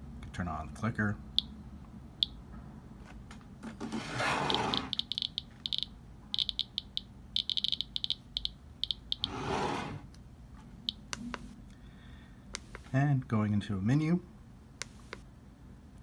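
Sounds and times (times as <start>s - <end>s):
geiger counter clicking: 4.5s - 9.4s.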